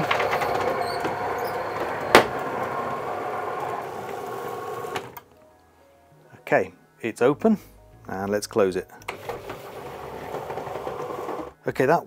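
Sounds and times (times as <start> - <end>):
garage door motor droning: 0.0 - 5.2, 9.1 - 11.6.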